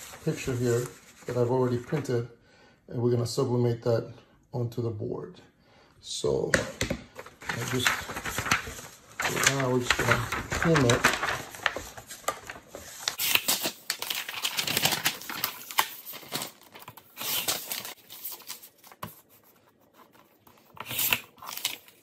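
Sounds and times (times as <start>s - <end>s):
paper rustling and sliding: 0.0s - 2.1s, 7.2s - 22.0s.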